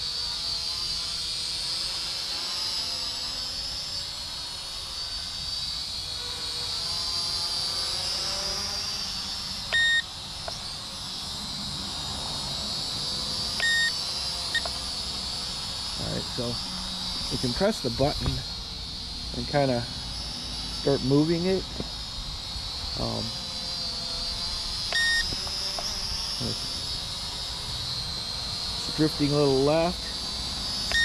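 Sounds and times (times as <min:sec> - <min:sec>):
drone propellers whining: 0:00.0 - 0:31.0
short electronic beeps: 0:09.8 - 0:10.0, 0:13.6 - 0:13.9, 0:25.0 - 0:25.3.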